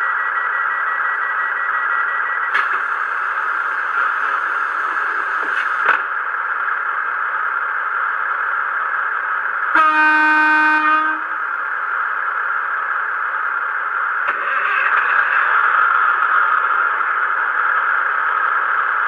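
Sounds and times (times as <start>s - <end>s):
model train horn: 9.7s - 11.4s.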